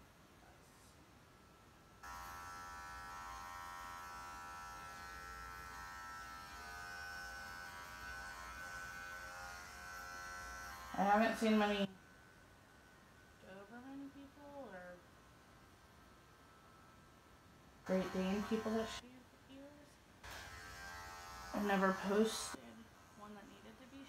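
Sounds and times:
electric clippers running: 2.0s - 11.9s, 17.8s - 19.0s, 20.2s - 22.6s.

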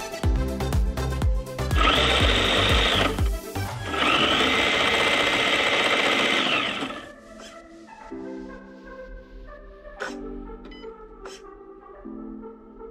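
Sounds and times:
music beat with thumping kick: 0.0s - 3.7s
electric motor whining: 1.8s - 7.1s.

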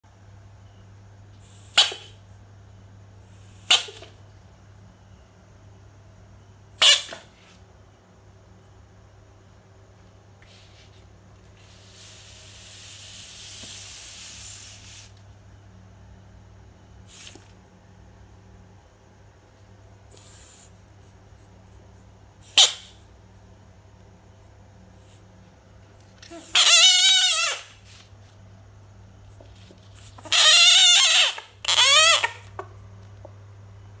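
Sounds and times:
bullfrog hissing: 1.4s - 2.2s, 11.6s - 15.2s, 17.0s - 17.5s, 20.1s - 20.8s, 22.4s - 23.0s, 30.0s - 32.5s
frog distress cries: 26.3s - 27.8s, 30.1s - 32.6s.

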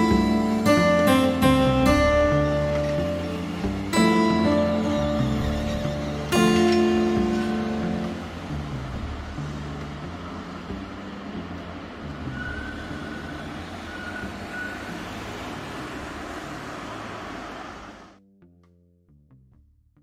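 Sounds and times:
tram rumbling on tracks: 0.0s - 18.2s
faint high squeals: 12.3s - 15.0s.

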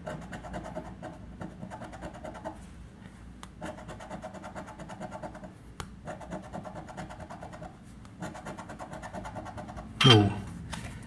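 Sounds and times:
coin scraping scratch card: 0.0s - 2.6s, 3.6s - 9.9s.

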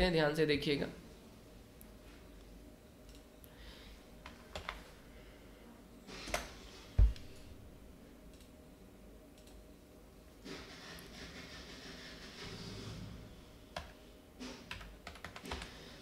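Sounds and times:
computer mouse clicks: 9.4s - 9.6s.

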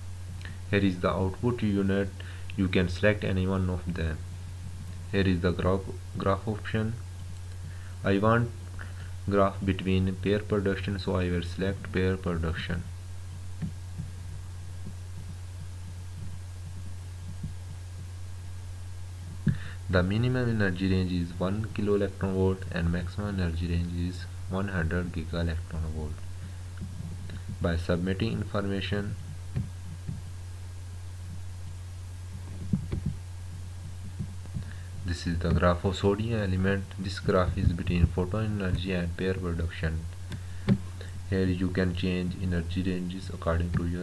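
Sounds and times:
low electrical hum: 0.0s - 44.0s
soft low thumps: 12.9s - 19.9s, 29.1s - 35.7s, 40.1s - 41.0s.

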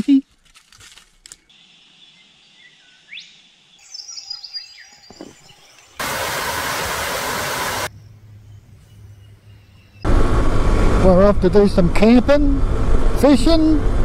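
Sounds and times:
birds chirping: 1.5s - 10.1s.

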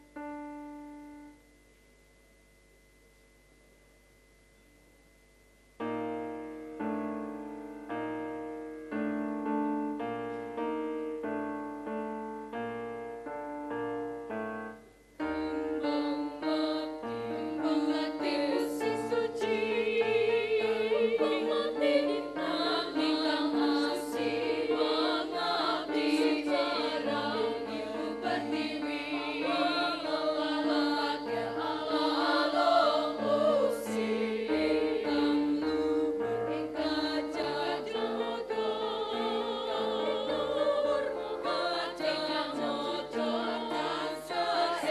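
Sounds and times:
piano chords: 0.0s - 1.7s, 5.7s - 44.9s
female choir singing: 15.3s - 44.9s.

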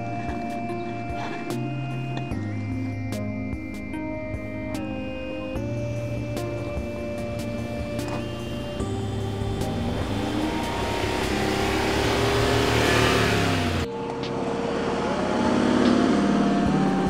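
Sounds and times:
suv engine accelerating: 5.5s - 17.0s.

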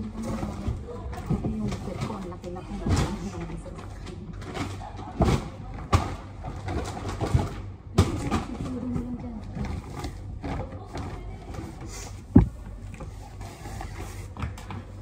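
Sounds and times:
sharp knocks: 12.3s - 12.6s.

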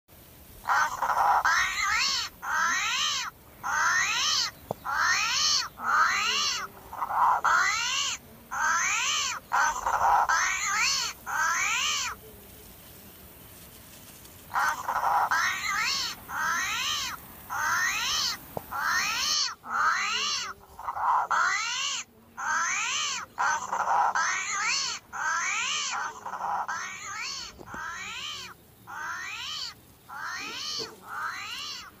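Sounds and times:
animal meow-like cry: 22.4s - 31.9s.

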